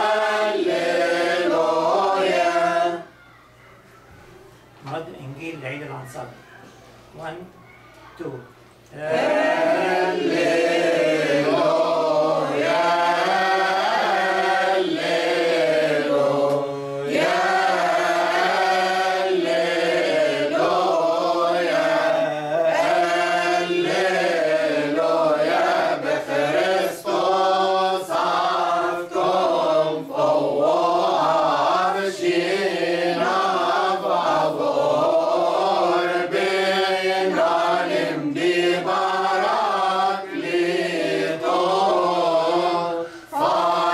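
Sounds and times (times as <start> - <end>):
group singing a hymn: 0.0 - 3.2, 8.9 - 43.9.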